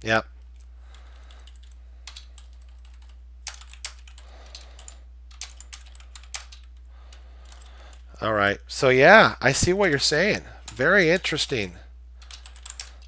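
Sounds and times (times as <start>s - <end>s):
steady low hum: 0.0s - 13.0s
keyboard typing: 0.4s - 8.0s, 12.2s - 13.0s.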